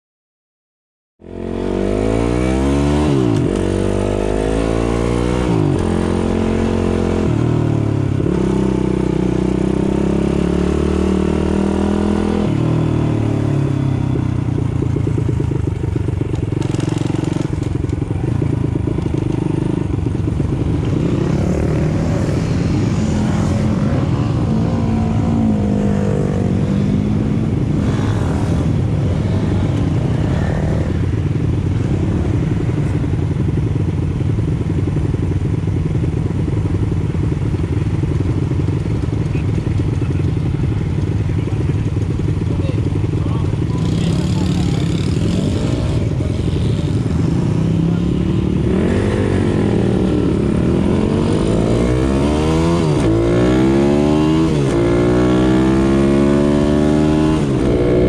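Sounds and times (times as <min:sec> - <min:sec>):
motorcycle engine accelerating: 0:01.2 - 0:58.0.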